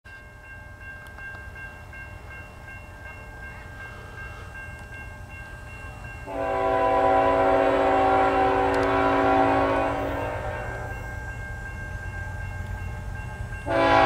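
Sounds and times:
locomotive horn chord: 6.2 - 11.0, 13.6 - 14.0.

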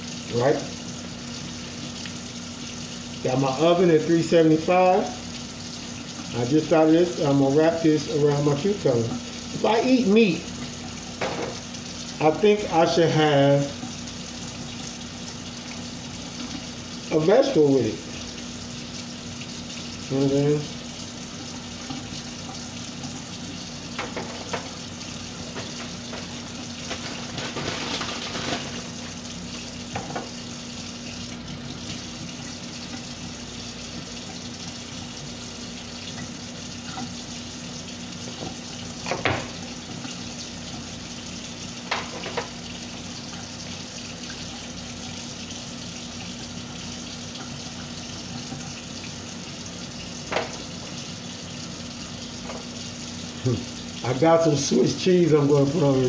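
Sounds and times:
knocks and rustles of foil pan: 26.8 - 28.9.

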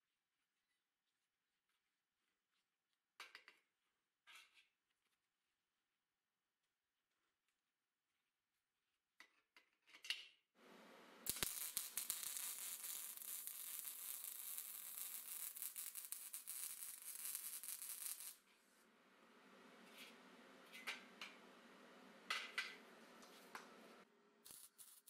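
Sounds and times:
welding arc crackling: 10.7 - 18.5, 22.4 - 25.0.

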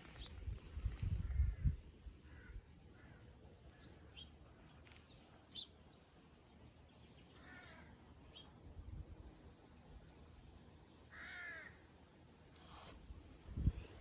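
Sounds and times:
small birds chirping: 0.0 - 9.0
crow cawing: 2.3 - 3.3, 7.4 - 7.9, 11.1 - 11.8.

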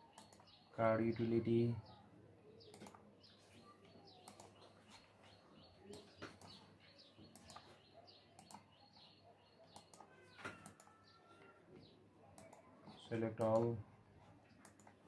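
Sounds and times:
faint bird chirping: 0.0 - 15.0
computer mouse clicks: 0.1 - 0.6, 2.6 - 3.0, 3.8 - 4.8, 5.8 - 6.6, 7.3 - 11.1, 12.3 - 12.7, 13.4 - 13.7, 14.5 - 15.0.

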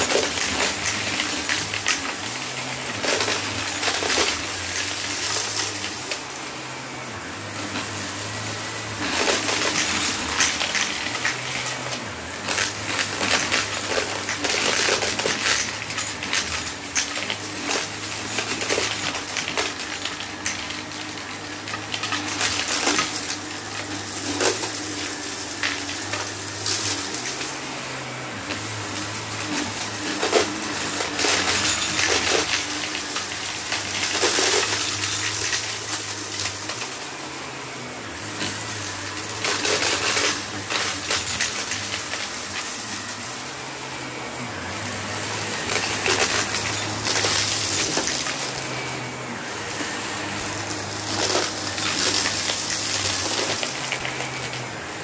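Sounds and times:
debris crackling in vacuum: 0.0 - 55.0
vacuum cleaner motor hum: 0.0 - 55.0.

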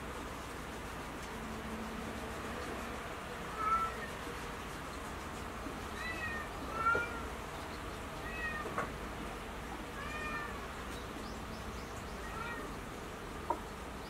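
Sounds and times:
cat meowing: 3.5 - 4.1, 6.0 - 7.3, 8.2 - 8.9, 9.9 - 10.6, 12.2 - 12.8.

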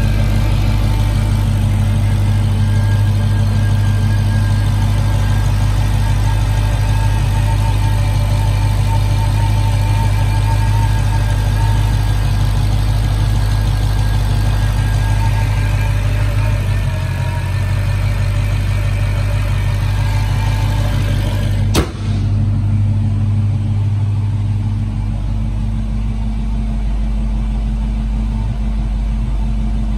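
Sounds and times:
car engine idling: 0.0 - 29.9
car hood slamming shut: 21.7 - 22.4.

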